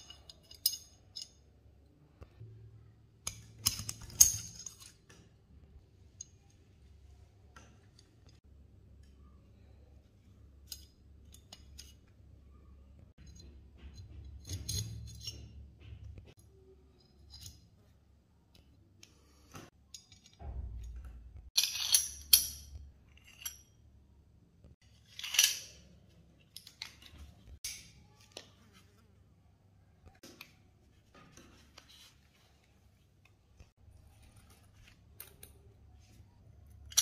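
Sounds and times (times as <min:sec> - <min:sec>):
pistol parts clicking and scraping: 0:00.0 - 0:01.6, 0:03.2 - 0:05.5, 0:10.4 - 0:12.3, 0:13.2 - 0:17.9, 0:18.5 - 0:23.8, 0:24.7 - 0:29.0, 0:30.1 - 0:37.0.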